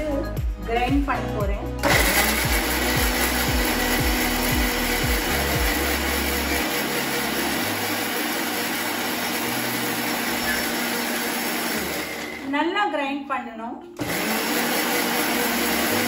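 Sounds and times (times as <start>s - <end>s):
electric mixer grinder running: 1.8s - 12.5s, 14.0s - 16.0s.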